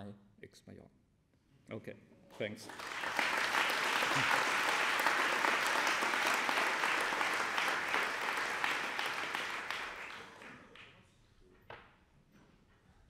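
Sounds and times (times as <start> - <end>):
audience applauding: 2.6 - 10.9.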